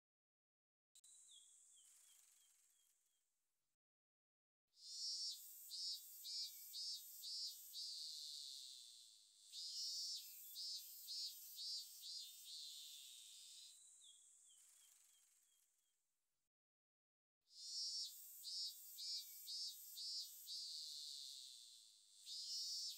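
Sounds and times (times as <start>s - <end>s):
cicada buzzing: 4.9s - 13.7s, 17.6s - 22.9s.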